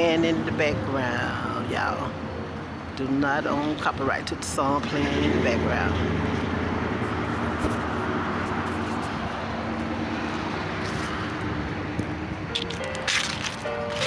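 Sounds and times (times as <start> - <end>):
traffic noise: 0.0 - 14.0
song with long held notes: 12.2 - 14.0.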